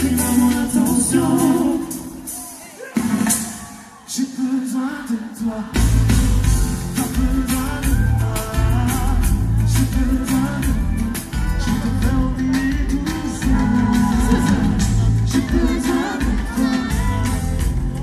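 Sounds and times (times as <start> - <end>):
person singing: 0.0 - 2.6, 3.9 - 18.0
live pop band: 0.0 - 18.0.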